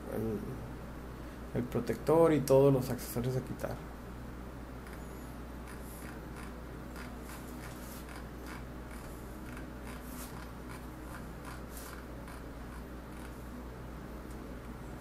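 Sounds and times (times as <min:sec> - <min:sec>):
low electrical hum: 0:00.0 - 0:15.0
mouse scroll wheel clicking: 0:05.7 - 0:13.4.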